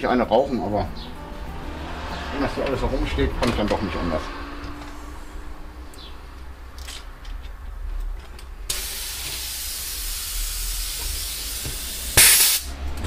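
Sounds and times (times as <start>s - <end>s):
compressed air hissing: 8.7s - 12.8s
loud blast of air: 8.7s - 12.8s.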